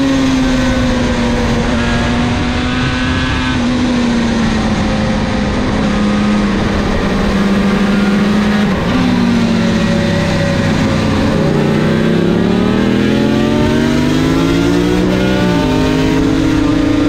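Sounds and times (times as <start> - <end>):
two-stroke motorcycle engine: 0.0 - 17.0.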